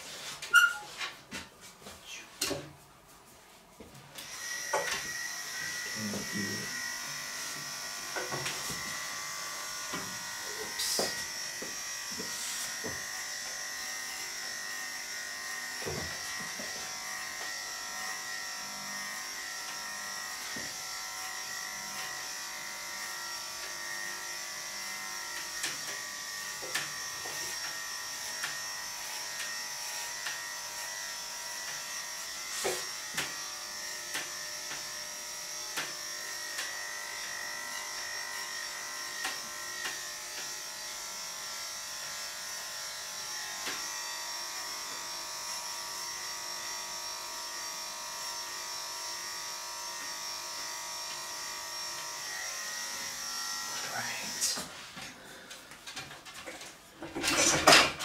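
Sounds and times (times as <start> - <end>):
electric clippers buzzing: 4.2 - 58.0.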